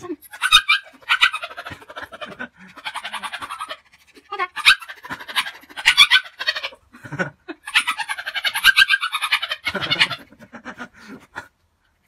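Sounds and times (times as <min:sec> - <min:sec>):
puppy panting: 0:00.3 - 0:06.7.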